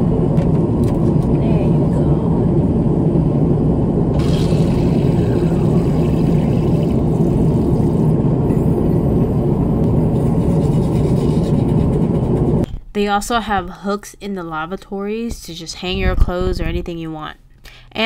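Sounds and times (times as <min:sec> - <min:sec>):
airliner engine and airflow rumble: 0:00.0 - 0:12.7.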